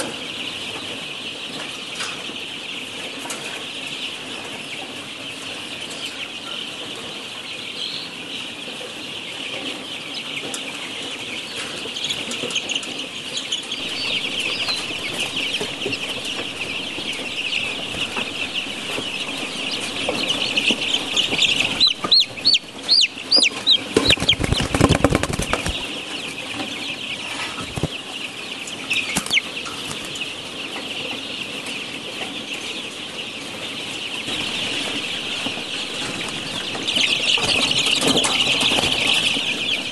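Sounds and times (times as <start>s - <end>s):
young hens peeping and chirping: 0.0s - 39.9s
loud sharp bird calls: 11.5s - 30.6s, 34.1s - 39.9s.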